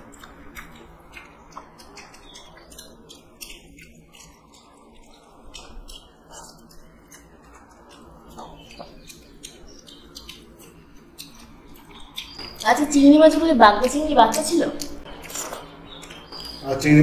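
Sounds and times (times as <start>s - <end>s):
chewing: 0.0s - 16.7s
fingers mixing food on steel plates: 0.0s - 17.0s.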